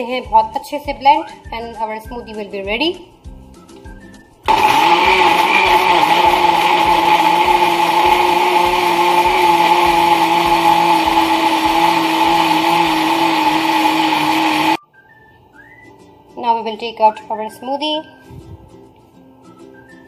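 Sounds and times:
blender running: 0:04.5 - 0:14.8.

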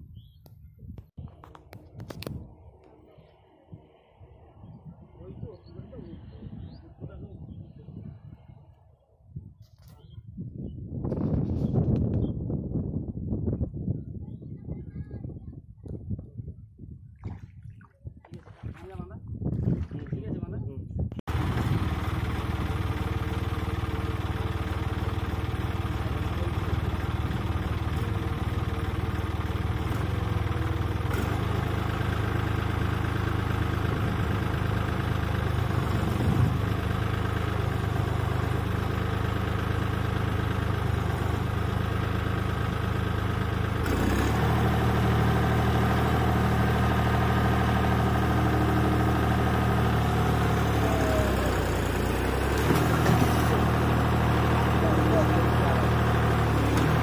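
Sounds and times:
tractor diesel engine running: 0:21.2 - 0:57.0.

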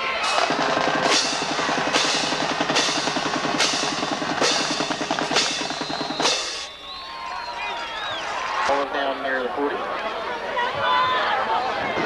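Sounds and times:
drumline drum roll: 0:00.0 - 0:06.7.

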